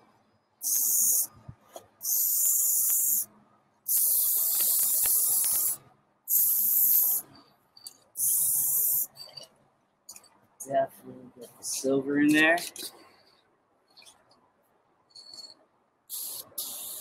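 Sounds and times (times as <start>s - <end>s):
aerosol spray can spraying: 0.6s - 1.3s, 2.0s - 3.3s, 3.9s - 7.3s, 8.2s - 9.2s, 16.1s - 17.0s.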